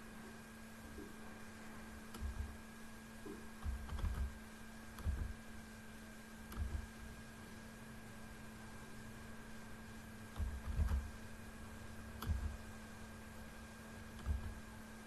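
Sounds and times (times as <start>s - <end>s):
steady electrical hum: 0.0s - 15.0s
keyboard and mouse clicking: 3.6s - 4.4s, 5.0s - 5.4s, 6.5s - 6.9s, 10.3s - 11.1s, 12.2s - 12.6s, 14.2s - 14.6s.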